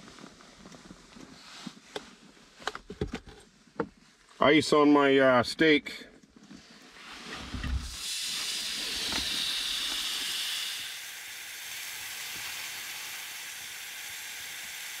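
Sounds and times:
steak sizzling on hot rocks: 0:07.9 - 0:15.0.

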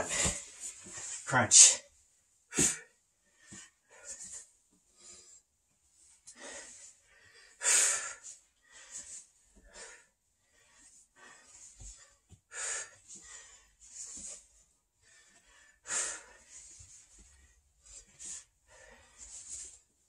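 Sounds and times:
man breathing hard: 0:06.3 - 0:19.8.

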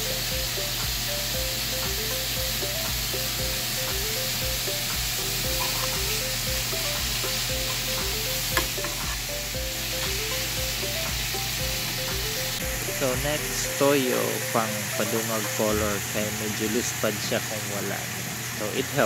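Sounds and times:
soft background music: 0:00.0 - 0:18.0
food sizzling in a pan: 0:00.0 - 0:19.0
metal spoon stirring: 0:05.5 - 0:06.0, 0:08.6 - 0:09.2.

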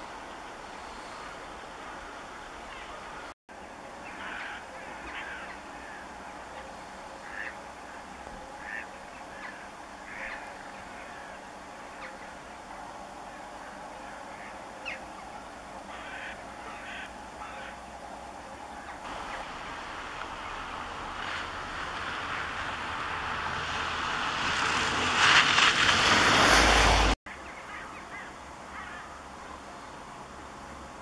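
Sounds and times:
steady background hum: 0:00.0 - 0:24.6
waterbirds calling: 0:00.0 - 0:30.2.

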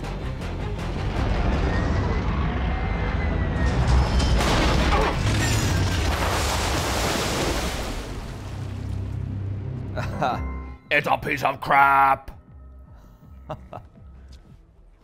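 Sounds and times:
low spaceship engine rumble: 0:00.0 - 0:04.5
rushing booming blast: 0:00.9 - 0:08.4.

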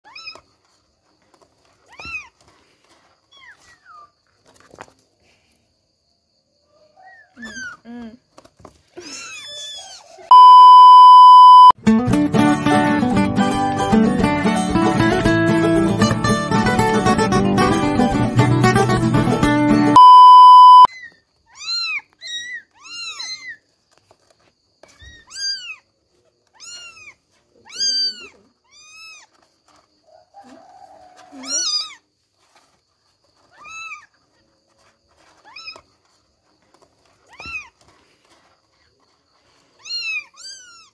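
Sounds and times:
kittens meowing: 0:06.9 - 0:07.9, 0:20.0 - 0:23.6, 0:24.9 - 0:29.4, 0:31.4 - 0:32.0, 0:39.8 - 0:40.9
test-tone beep: 0:10.3 - 0:11.8, 0:20.0 - 0:20.9.

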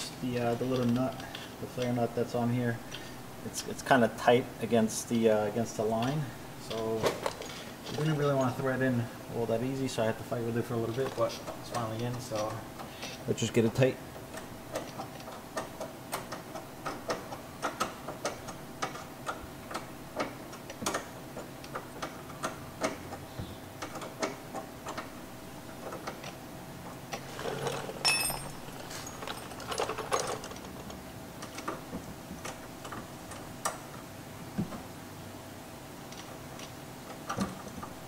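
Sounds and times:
metal clatter with scraping: 0:06.7 - 0:08.6, 0:27.1 - 0:31.0.

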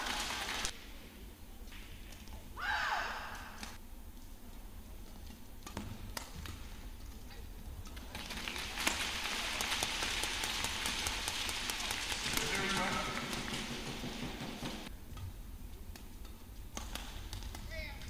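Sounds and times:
people clapping: 0:00.0 - 0:00.8, 0:07.9 - 0:14.9
racket striking shuttlecock: 0:15.9 - 0:17.7.

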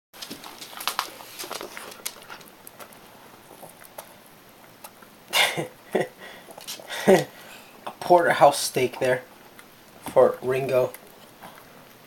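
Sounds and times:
dog gnawing on bone: 0:00.2 - 0:05.2.

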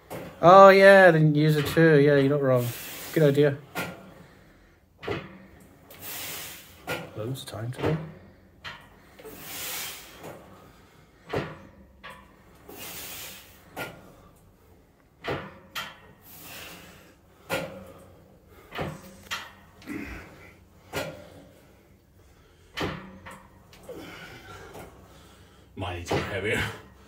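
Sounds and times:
hissing breaths: 0:02.6 - 0:07.0, 0:08.1 - 0:11.8, 0:12.4 - 0:15.0, 0:16.2 - 0:22.8
weight stack clanking: 0:03.6 - 0:14.4, 0:15.1 - 0:27.0.

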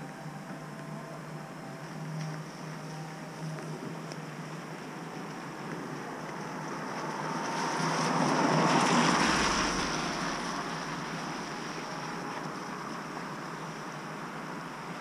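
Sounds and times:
car driving past: 0:04.6 - 0:14.8.

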